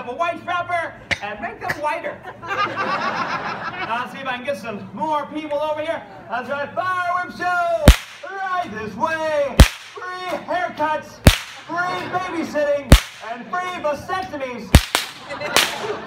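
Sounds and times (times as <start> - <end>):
whip cracking: 7.9 - 8.4, 9.6 - 10.4, 11.3 - 11.7, 12.9 - 13.3, 14.7 - 15.9.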